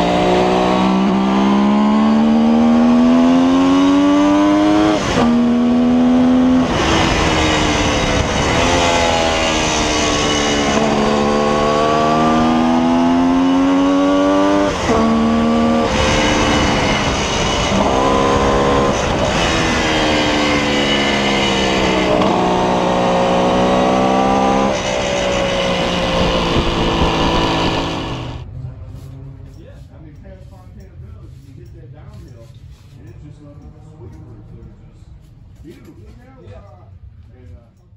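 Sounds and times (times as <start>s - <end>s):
motorcycle engine revving: 0.0s - 29.1s
wind rushing: 6.4s - 12.9s, 14.3s - 28.4s.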